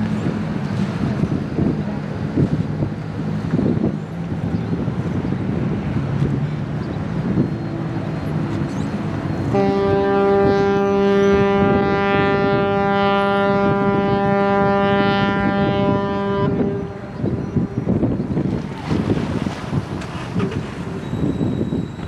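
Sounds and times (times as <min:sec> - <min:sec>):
wind buffeting microphone: 0:00.0 - 0:22.0
ship's horn blast: 0:07.3 - 0:18.2.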